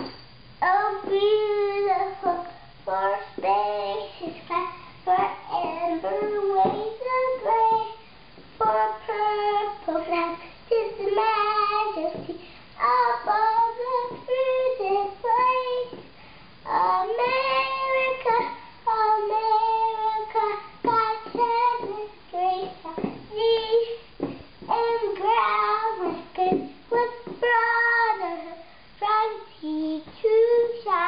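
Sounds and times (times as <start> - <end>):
girl singing unaccompanied: 0.0 - 31.0
girl breathing: 10.4 - 10.7, 12.3 - 12.8, 16.1 - 16.6, 28.6 - 29.0.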